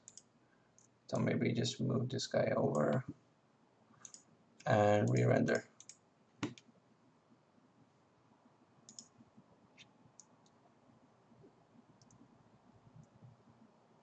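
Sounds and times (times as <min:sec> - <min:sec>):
computer mouse clicks: 0:00.0 - 0:00.9, 0:04.0 - 0:06.7, 0:08.9 - 0:09.1, 0:12.0 - 0:12.2.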